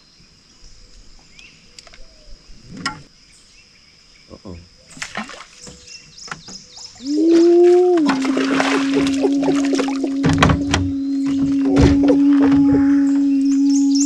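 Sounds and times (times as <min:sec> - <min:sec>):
birds chirping: 0:00.6 - 0:14.0.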